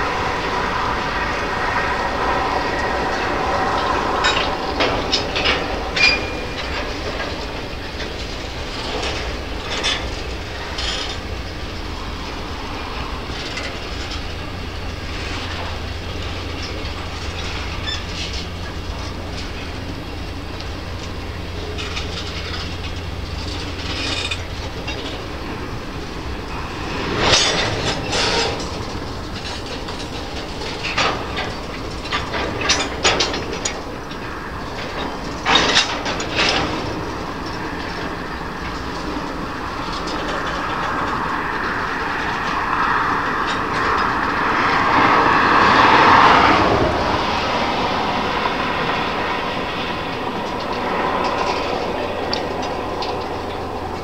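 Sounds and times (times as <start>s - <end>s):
train wheels clacking on rails: 0.0s - 54.0s
sharp metallic clanks: 0.2s - 12.0s, 13.2s - 39.0s.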